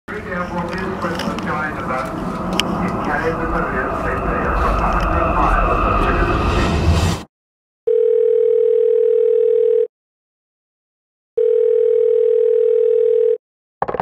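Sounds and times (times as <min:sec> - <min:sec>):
telephone ringback tone: 0:07.9 - 0:09.9, 0:11.4 - 0:13.4.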